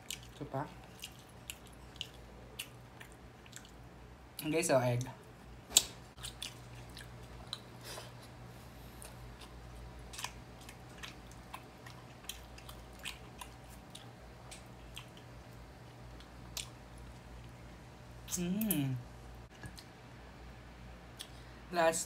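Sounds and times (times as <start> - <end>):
chewing and mouth smacks: 0.0 - 3.8, 5.7 - 8.4, 9.0 - 17.6
low steady hum: 0.0 - 22.0.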